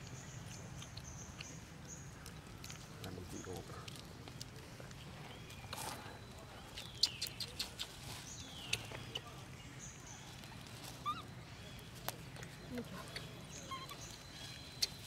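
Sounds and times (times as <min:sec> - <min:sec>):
low steady background noise: 0:00.0 - 0:15.0.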